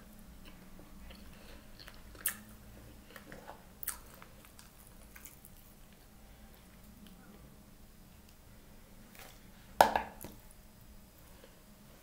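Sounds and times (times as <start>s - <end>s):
person chewing egg: 0.4s - 6.7s.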